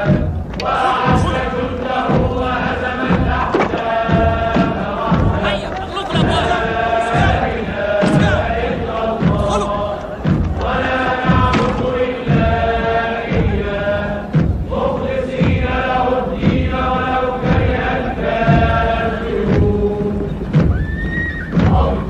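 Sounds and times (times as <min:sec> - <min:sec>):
high voices singing: 0:00.0 - 0:22.0
steady drum beat: 0:00.0 - 0:22.0
women ululating: 0:20.7 - 0:21.6.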